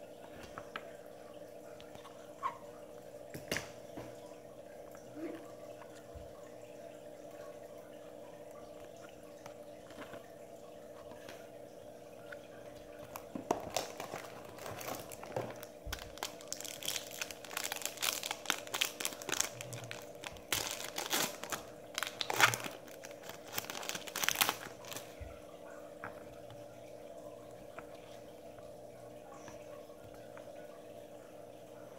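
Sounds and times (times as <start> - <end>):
faint steady hum: 0.0 - 31.9
foil wrapper tearing and crinkling: 13.6 - 25.1.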